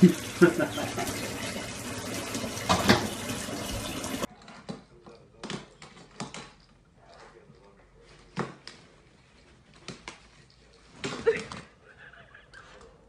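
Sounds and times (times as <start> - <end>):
water running from tap: 0.0 - 4.3.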